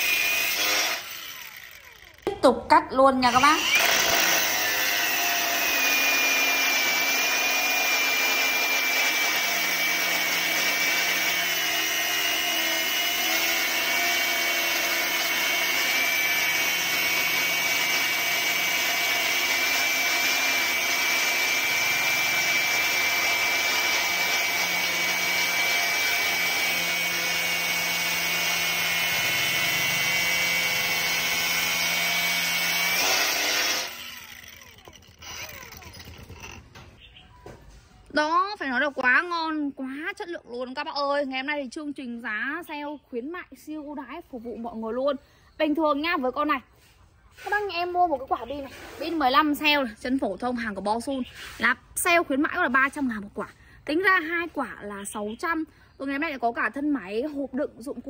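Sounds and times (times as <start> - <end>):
angle grinder cutting steel: 0.0 - 2.3, 3.2 - 36.8.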